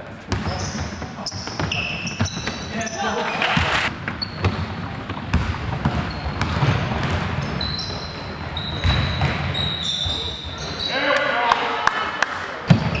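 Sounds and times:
basketball bouncing: 3.5s - 7.6s, 8.7s - 9.6s.

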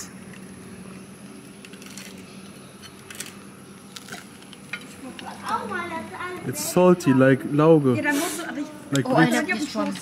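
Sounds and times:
bread crunch bite: 3.0s - 4.6s.

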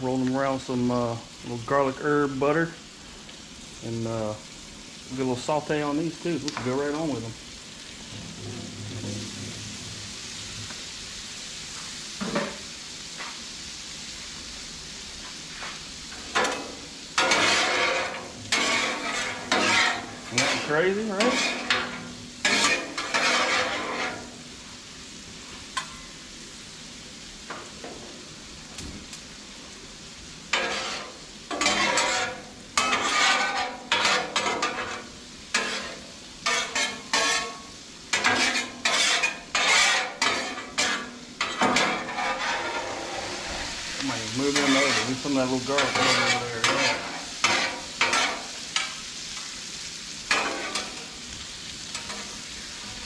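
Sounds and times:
potatoes sizzling in butter: 0.0s - 53.0s
metal spatulas scraping griddle: 8.1s - 9.9s, 15.5s - 24.4s, 30.5s - 49.0s, 50.3s - 51.1s, 51.9s - 52.4s.

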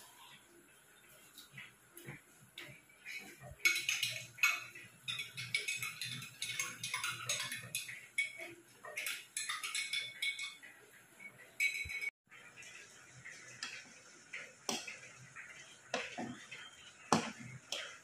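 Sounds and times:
utensil scraping and clinking pan: 2.6s - 12.1s.

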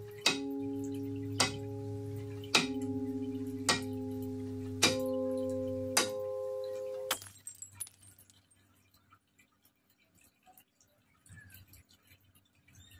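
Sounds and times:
bell-like music chord: 0.0s - 7.1s.

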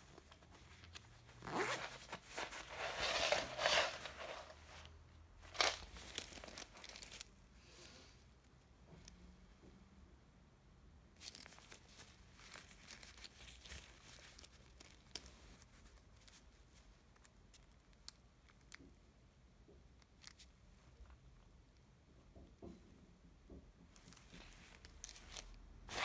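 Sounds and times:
jacket fabric rustling: 0.0s - 7.3s, 11.2s - 16.9s, 24.0s - 26.0s
zipper pulls clicking: 1.4s - 4.2s.

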